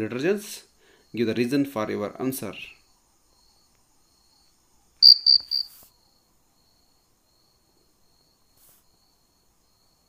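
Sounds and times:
cricket chirping: 2.5 - 10.0
faint steady trill: 2.8 - 8.5.

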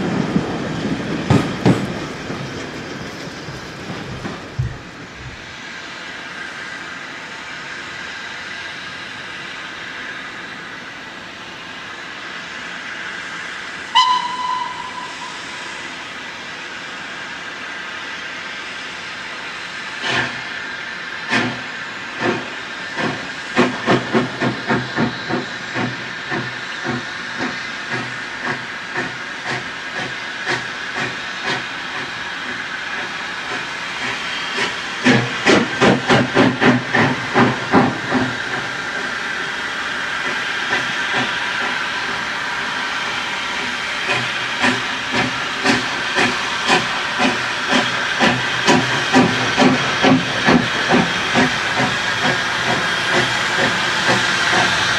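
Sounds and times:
steam hissing: 0.0 - 54.9
steam locomotive exhaust chuffs: 0.0 - 54.9
steam whistle blast: 13.9 - 16.0.

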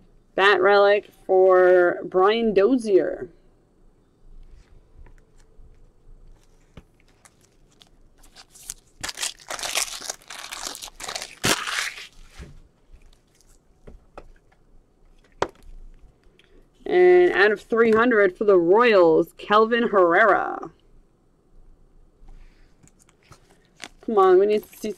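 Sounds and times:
plastic sleeve crinkling: 5.1 - 13.7, 22.8 - 24.9.

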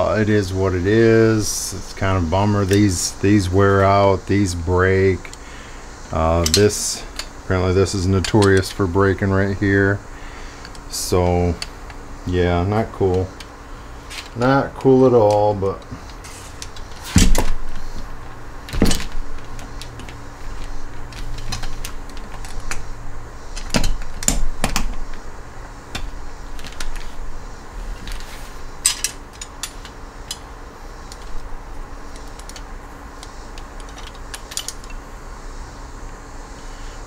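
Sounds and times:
faint steady hum: 0.0 - 37.0
metal parts clinking and knocking: 8.2 - 8.8, 15.2 - 18.0, 18.7 - 22.9, 23.5 - 25.2, 28.0 - 30.5, 31.1 - 35.0.

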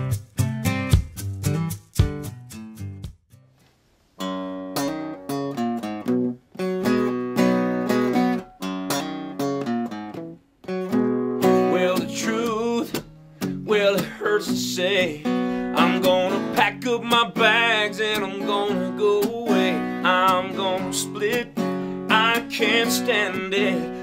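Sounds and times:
acoustic guitar strumming: 0.0 - 3.5, 4.2 - 24.0
man singing: 11.4 - 24.0.

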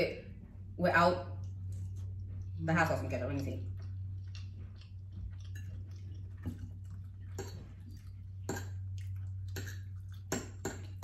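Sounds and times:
steady low hum: 0.0 - 11.0
fork clicking on plate: 8.4 - 11.0.

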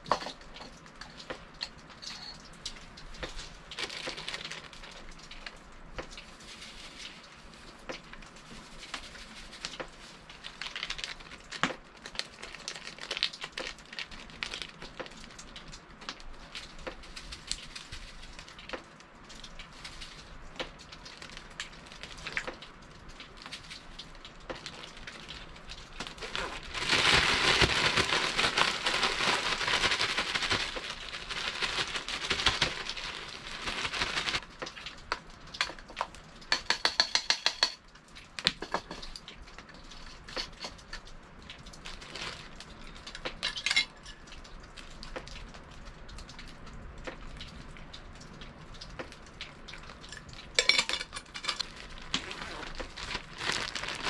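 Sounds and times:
wood fire crackling: 0.0 - 36.9, 37.8 - 54.0.

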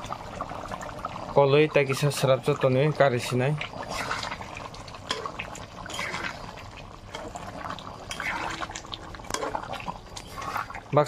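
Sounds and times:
curry bubbling in wok: 0.0 - 11.0
spatula scraping pan: 3.8 - 10.8.

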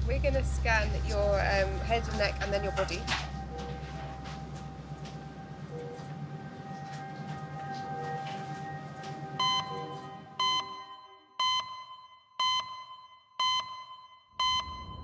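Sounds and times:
soft musical drone: 0.0 - 11.3
sharp electronic beeps: 9.4 - 15.0.

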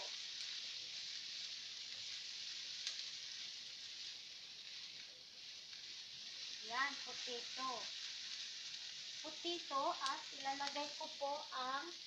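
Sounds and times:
potatoes sizzling in frying pan: 0.0 - 12.0.

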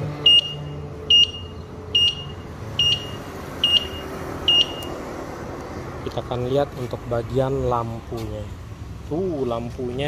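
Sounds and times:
electric bike turn signal beeps: 0.2 - 5.0.

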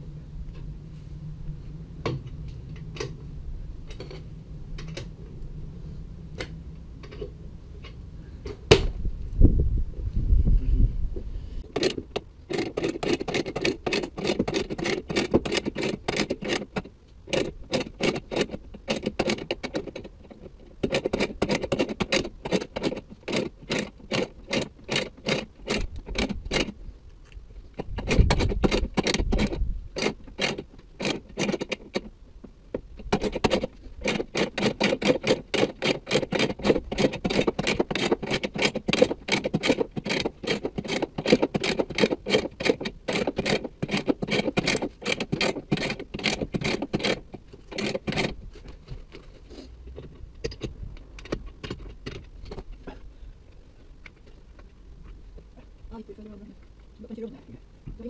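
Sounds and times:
scissor jack clicking: 11.7 - 20.1, 27.8 - 32.1, 33.0 - 48.4.

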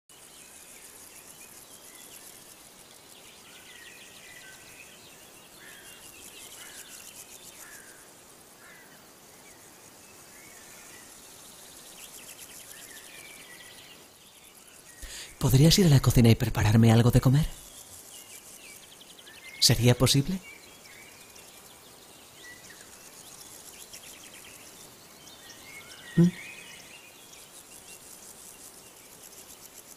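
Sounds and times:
insects trilling: 0.1 - 29.9
birds chirping: 12.2 - 23.5, 24.2 - 27.5.

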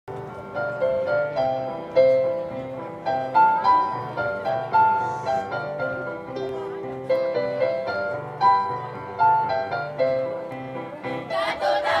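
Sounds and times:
instrumental music: 0.1 - 12.0.

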